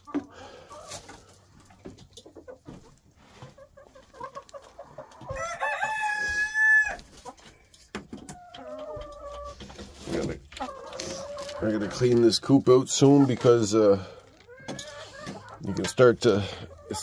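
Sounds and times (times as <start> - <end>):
chickens clucking: 0.0 - 17.0
long rising chicken call: 5.3 - 7.0.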